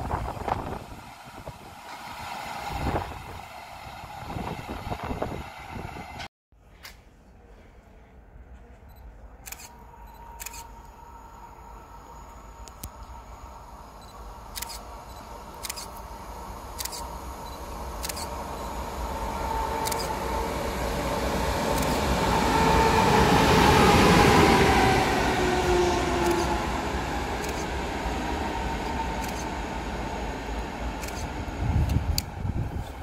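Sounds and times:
electric locomotive passing: 0.0 - 6.3, 9.4 - 33.0
locomotive whine: 9.5 - 33.0.

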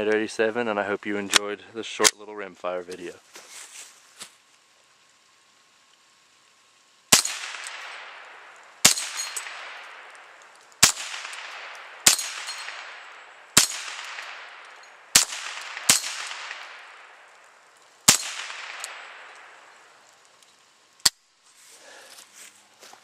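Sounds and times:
rifle gunshots with echo: 7.1 - 17.4, 18.1 - 19.8
steel targets ringing: 8.8 - 9.8, 10.8 - 17.2.

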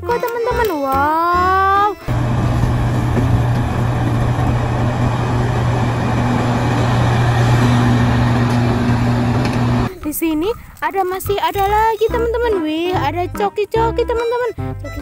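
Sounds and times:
excavator diesel engine drone: 2.0 - 9.9
higher whine: 2.0 - 9.9.

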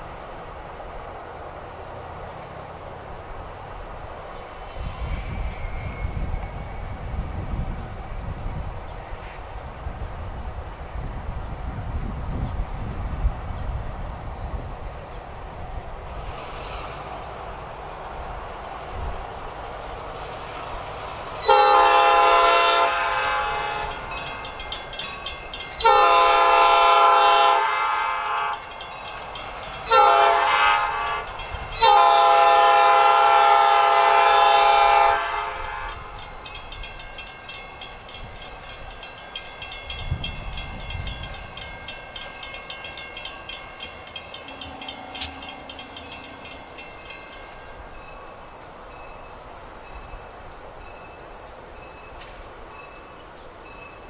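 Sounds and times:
locomotive air horn blasts: 21.4 - 24.2, 25.8 - 28.8, 29.8 - 36.3.

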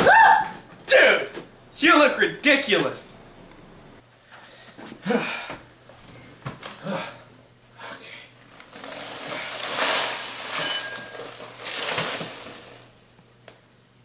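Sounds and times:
cereal pouring into bowl: 8.6 - 13.0.

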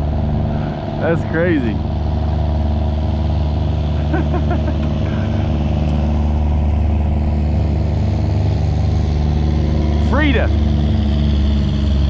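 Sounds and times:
boat diesel engine droning: 0.0 - 12.0.

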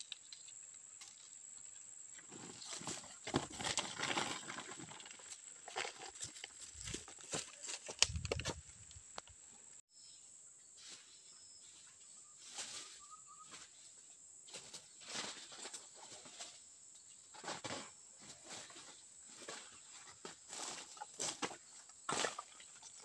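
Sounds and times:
footsteps crunching through dry leaves: 5.6 - 8.9.

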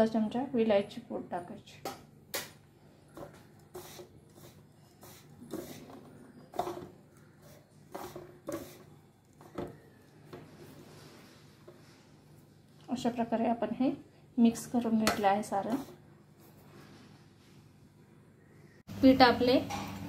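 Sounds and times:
dry mix scraping in bowl: 3.2 - 9.8, 15.5 - 16.9.

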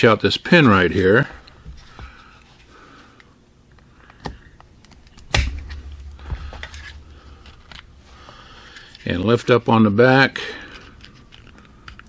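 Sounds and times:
handling noise: 4.2 - 9.1.

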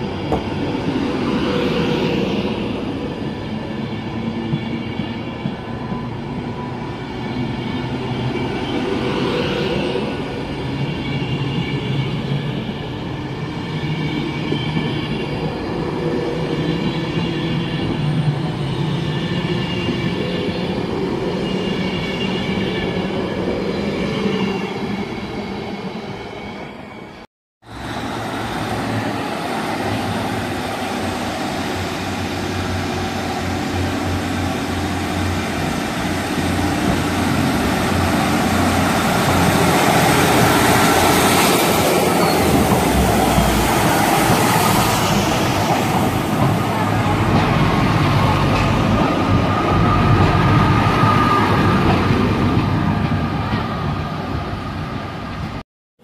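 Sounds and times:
diesel trains pulling out: 0.0 - 55.6.

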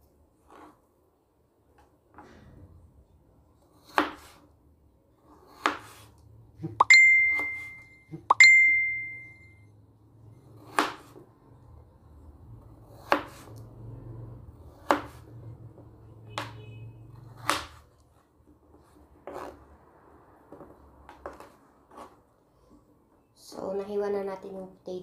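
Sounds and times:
knife cutting potatoes: 3.6 - 4.5, 5.2 - 7.8, 10.4 - 11.2, 12.5 - 13.8, 14.6 - 15.7, 17.2 - 18.0, 18.7 - 19.7.

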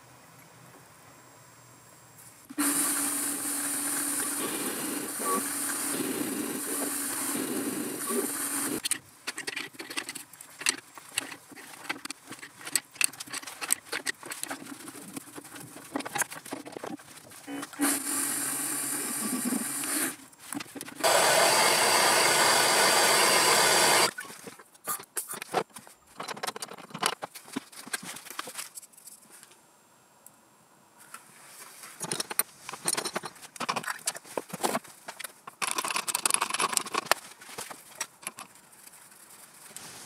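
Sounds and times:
steady hiss: 0.0 - 9.3
clicks and clinks of metal parts: 32.0 - 34.3.

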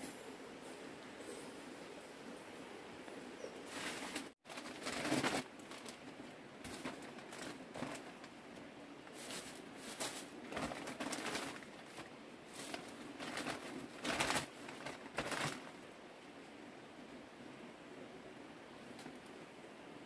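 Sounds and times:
plastic bags rustling: 3.7 - 15.9.

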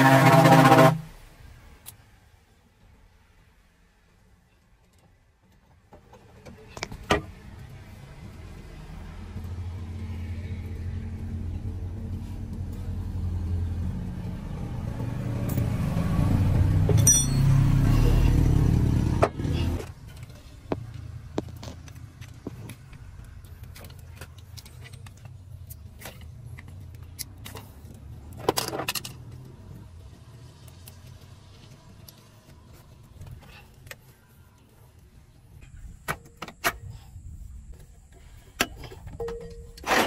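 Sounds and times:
engine rumbling: 0.0 - 40.0
hand tools clinking: 16.9 - 17.6.

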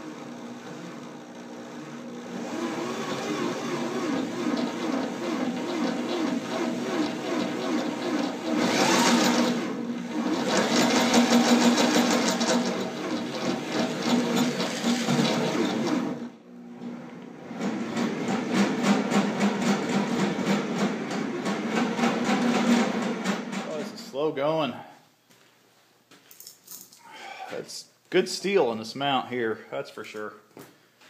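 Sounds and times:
electric drill boring steel: 0.0 - 16.3.

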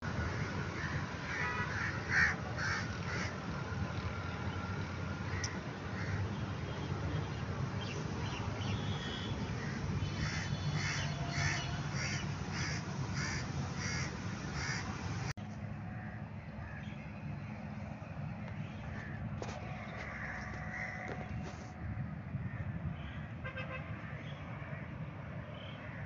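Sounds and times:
crows cawing: 0.3 - 3.4, 5.3 - 6.3, 9.6 - 14.9, 15.9 - 16.8, 19.8 - 21.6.

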